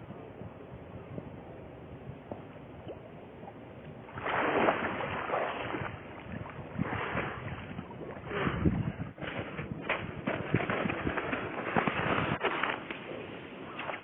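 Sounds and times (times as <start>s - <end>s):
splashing in icy water: 4.1s - 14.0s.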